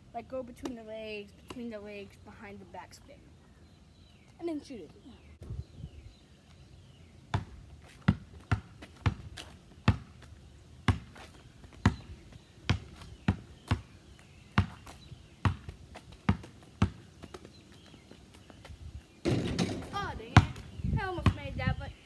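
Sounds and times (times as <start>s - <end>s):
basketball bouncing: 7.3s - 10.3s, 10.9s - 11.2s, 11.8s - 12.1s, 12.7s - 13.9s, 14.5s - 17.4s, 19.2s - 21.5s.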